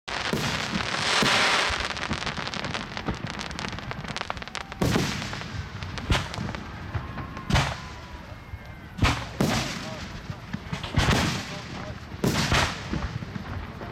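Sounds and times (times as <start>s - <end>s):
fireworks bangs: 0.1s - 13.9s
fireworks crackling: 0.1s - 13.9s
fireworks hiss: 0.1s - 13.9s.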